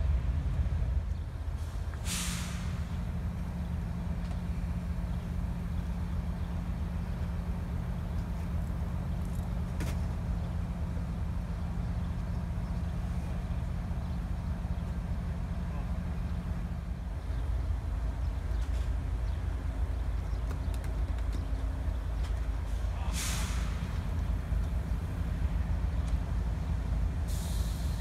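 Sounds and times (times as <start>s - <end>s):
diesel locomotive idling: 0.0s - 28.0s
air hiss: 1.6s - 3.0s, 22.8s - 24.0s, 27.2s - 28.0s.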